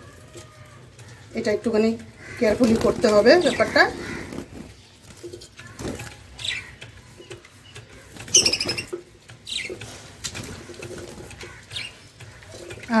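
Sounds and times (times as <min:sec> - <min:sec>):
budgerigars chirping and chattering: 0:01.1 - 0:13.0.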